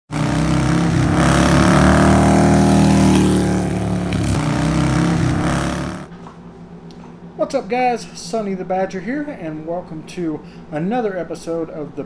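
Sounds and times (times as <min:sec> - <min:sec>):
motorcycle engine revving: 0:00.0 - 0:06.1.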